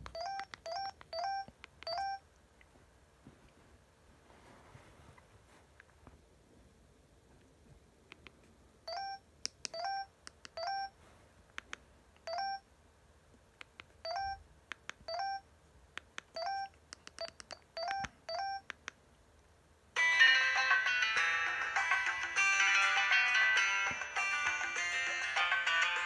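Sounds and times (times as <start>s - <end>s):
phone keypad beeps: 0.1s - 2.2s, 8.9s - 10.9s, 12.2s - 12.6s, 14.0s - 14.4s, 15.1s - 15.4s, 16.4s - 18.7s.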